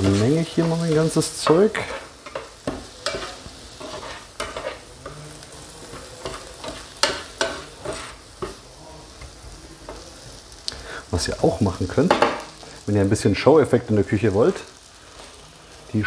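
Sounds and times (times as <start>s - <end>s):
spatula scraping frying pan: 0.0s - 10.1s
vegetables sizzling: 0.0s - 16.0s.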